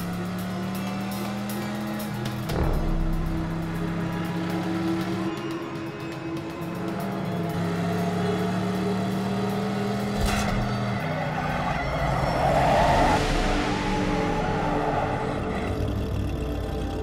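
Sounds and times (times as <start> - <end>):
car engine running hard: 0.0 - 17.0
tyres skidding: 0.0 - 17.0
brake hit: 2.4 - 5.3.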